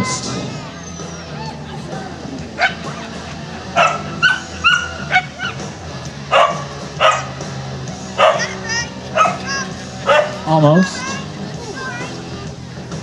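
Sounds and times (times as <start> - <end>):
dog barking: 2.6 - 3.0, 3.8 - 5.7, 6.3 - 7.5, 8.2 - 10.5.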